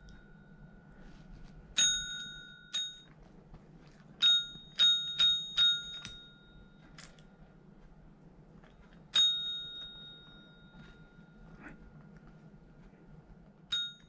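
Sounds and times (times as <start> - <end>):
call bell dinging: 1.8 - 3.1, 4.2 - 6.9, 9.1 - 11.5, 13.7 - 14.0.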